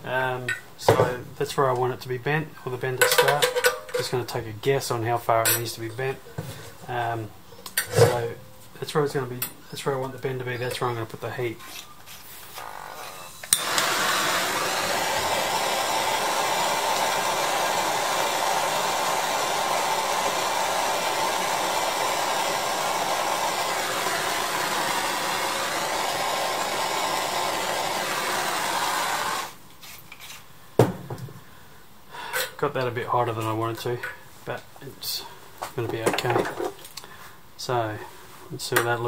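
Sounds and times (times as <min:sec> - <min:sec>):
hissing torch flame: 0:12.6 - 0:29.6
gas torch ignition click: 0:13.4 - 0:14.0.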